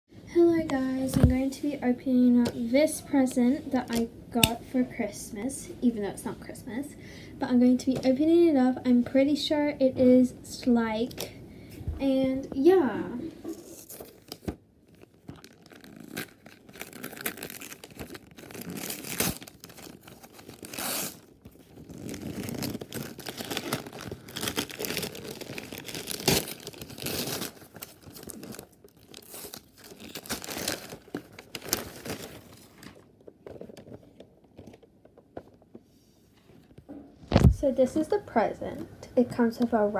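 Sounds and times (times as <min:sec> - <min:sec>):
wrapping paper tearing: 0:13.5 - 0:33.0.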